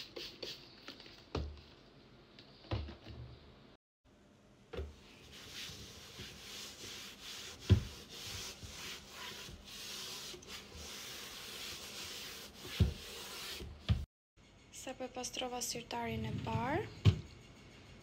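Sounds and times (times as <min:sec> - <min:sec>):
cloth rubbing in drawer: 0:05.1 - 0:14.0.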